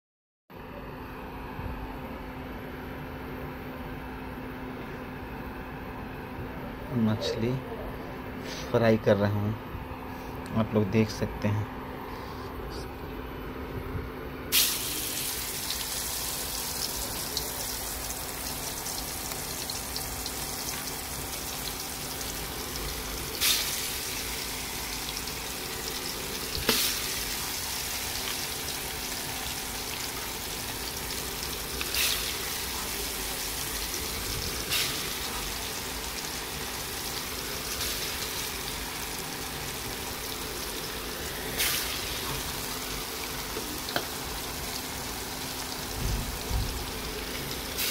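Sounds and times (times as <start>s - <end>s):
fish sizzling in hot oil: 14.5s - 47.9s.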